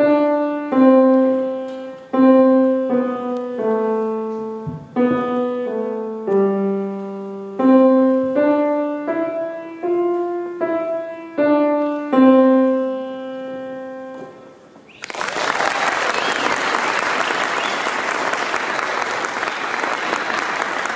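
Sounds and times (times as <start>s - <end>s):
grand piano playing: 0.0s - 14.8s
audience applause: 14.9s - 20.9s.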